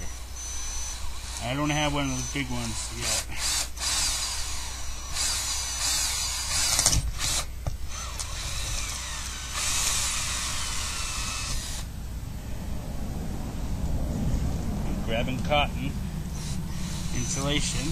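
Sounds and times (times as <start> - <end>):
power drill boring through wall: 0.0 - 11.9, 16.3 - 17.9.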